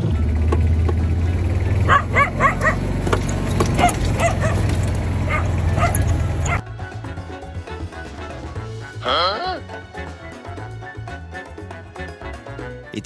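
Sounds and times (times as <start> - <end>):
small dog yapping: 1.9 - 2.8, 3.7 - 6.6.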